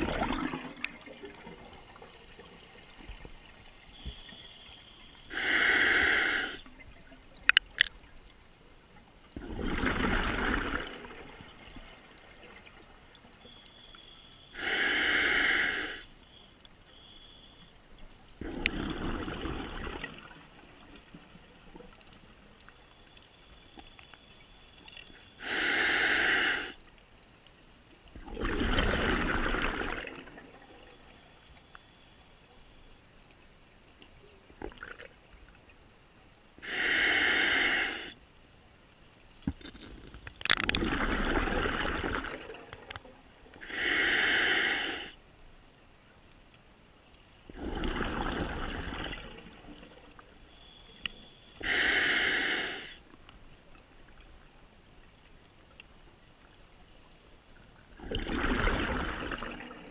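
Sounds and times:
exhaled bubbles rushing: 0.0s - 1.8s, 9.4s - 11.4s, 18.4s - 20.4s, 28.2s - 30.8s, 40.4s - 43.0s, 47.5s - 49.9s, 57.9s - 59.9s
regulator inhale hiss: 3.9s - 6.7s, 14.5s - 16.1s, 25.4s - 28.2s, 36.6s - 38.2s, 43.6s - 45.2s, 50.5s - 53.1s.

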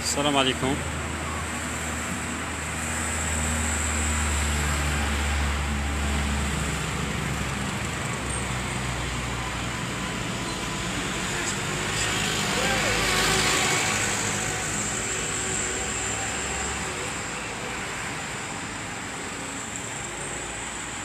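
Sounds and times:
street traffic: 0.0s - 21.0s
vehicle engine rumble: 0.0s - 21.0s.

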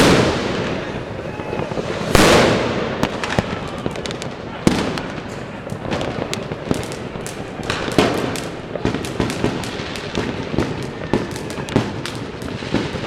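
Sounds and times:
distant fireworks bangs: 0.0s - 13.0s
firecrackers banging: 0.0s - 13.0s.

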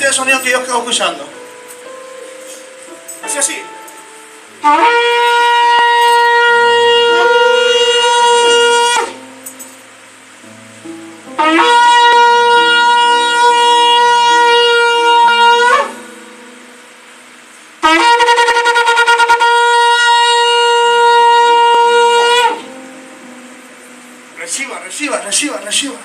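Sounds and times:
shofar blasts: 3.2s - 9.6s, 11.3s - 16.6s, 17.8s - 22.9s.

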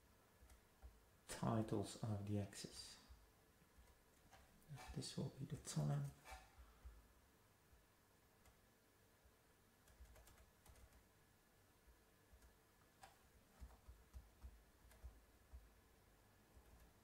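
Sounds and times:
typing on keyboard: 9.8s - 11.1s, 12.4s - 15.6s.

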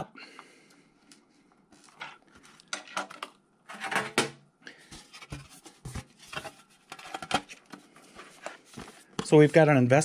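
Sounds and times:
laptop cover scrapes and clatter: 4.9s - 9.2s.

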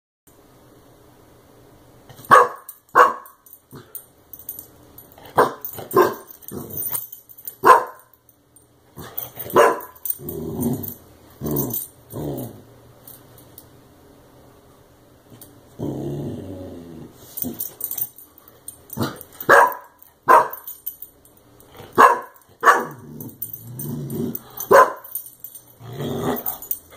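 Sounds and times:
puppy barking: 2.3s - 3.4s, 5.4s - 6.3s, 7.6s - 8.1s, 9.5s - 10.0s, 19.5s - 20.7s, 22.0s - 23.0s, 24.7s - 25.1s
puppy growling: 10.1s - 12.7s, 15.8s - 17.6s, 22.6s - 24.8s, 25.8s - 26.9s.

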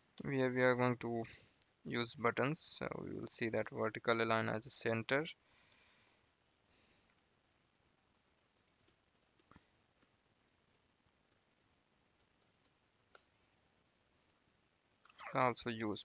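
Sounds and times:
computer keyboard keystrokes: 8.1s - 11.6s.

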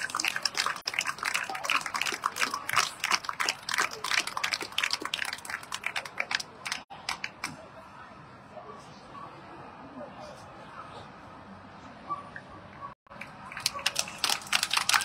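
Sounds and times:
crowd applauding: 0.0s - 7.3s, 13.1s - 15.0s.

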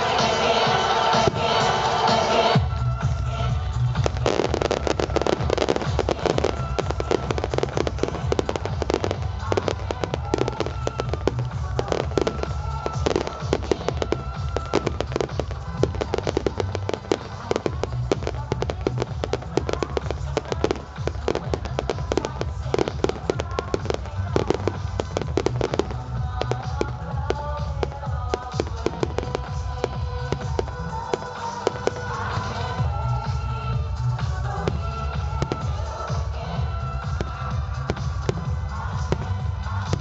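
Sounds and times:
fireworks bangs and crackles: 0.0s - 40.0s
music playing: 0.0s - 40.0s.

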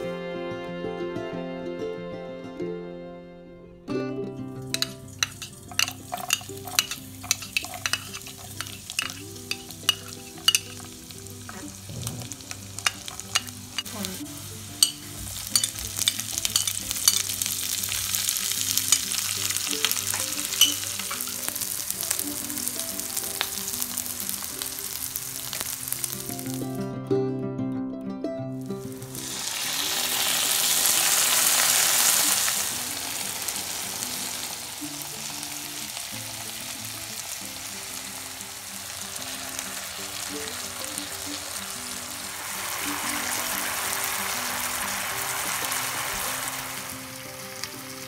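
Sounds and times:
vegetables sizzling in hot oil: 4.6s - 26.8s, 28.6s - 48.0s.

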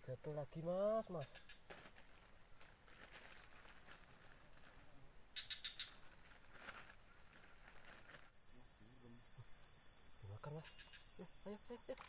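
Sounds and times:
high-pitched insect drone: 8.0s - 12.0s.

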